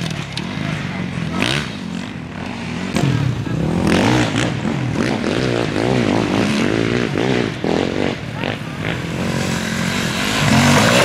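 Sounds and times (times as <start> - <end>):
dirt bike engines revving: 0.0 - 11.0.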